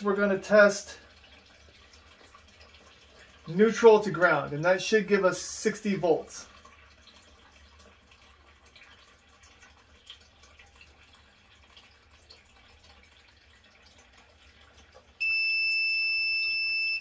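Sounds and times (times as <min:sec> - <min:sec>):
high-pitched meter beep: 0:15.2 - 0:17.0.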